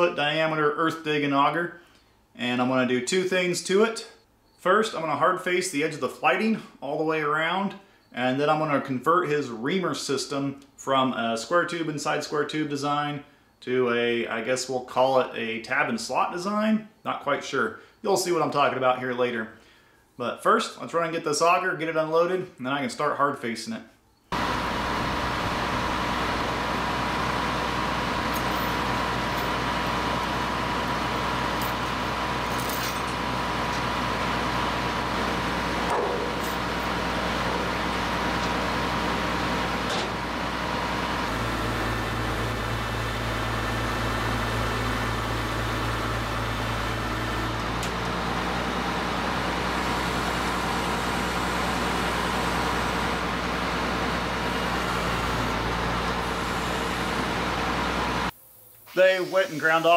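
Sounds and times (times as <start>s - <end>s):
high whine: 24.3s - 47.9s
truck engine running: 24.3s - 58.3s.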